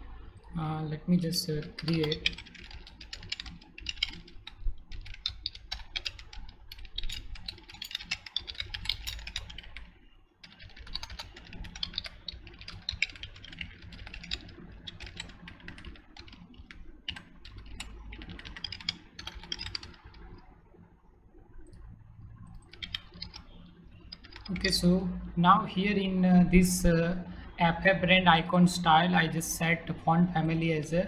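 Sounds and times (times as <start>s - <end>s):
typing on computer keyboard: 1.5s - 20.5s, 21.6s - 24.8s.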